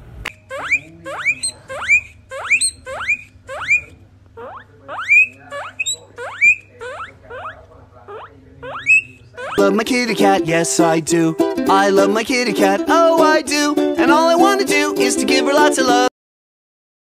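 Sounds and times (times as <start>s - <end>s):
guinea pig wheeking: 0.3s - 9.8s.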